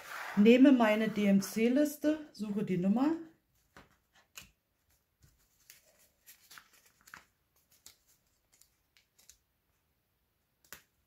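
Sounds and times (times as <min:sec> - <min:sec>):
paper pages flicking: 0:05.6 - 0:09.4.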